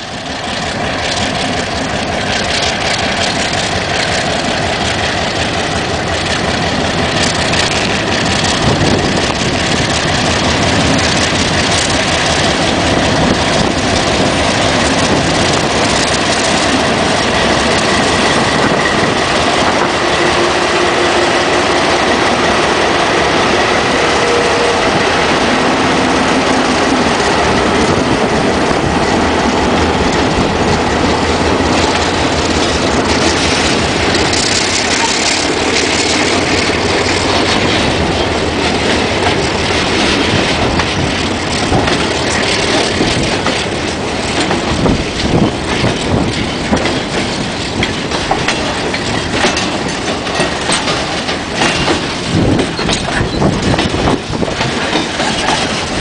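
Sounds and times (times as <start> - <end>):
diesel locomotive engine: 0.0 - 56.0
train wheels clattering over rail joints: 0.0 - 56.0.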